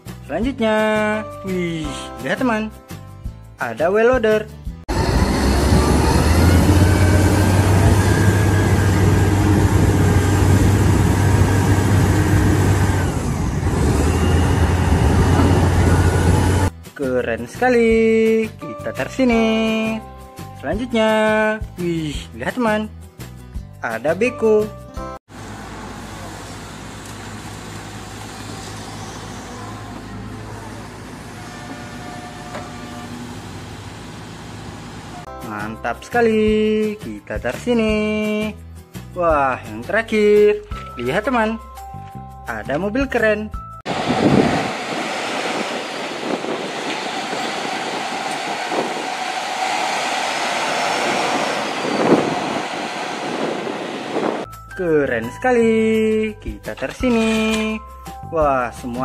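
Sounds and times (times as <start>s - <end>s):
excavator diesel engine humming: 4.9s - 16.7s, 25.3s - 35.3s, 43.9s - 54.4s.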